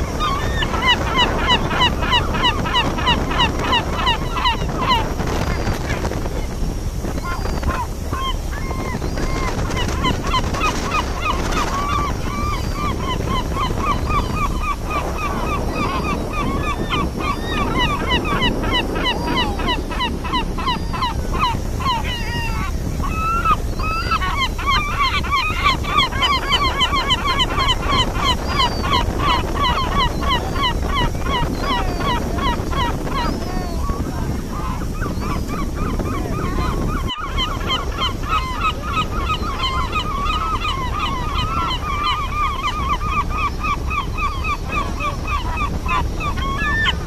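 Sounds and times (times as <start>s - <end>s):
gulls calling: 0.0s - 47.0s
ship engine rumble: 0.0s - 47.0s
wind: 0.0s - 47.0s.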